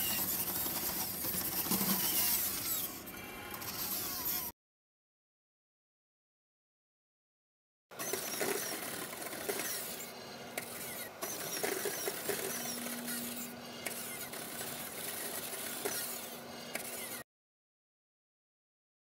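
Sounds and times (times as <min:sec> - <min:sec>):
low hum: 0:12.3 - 0:14.9.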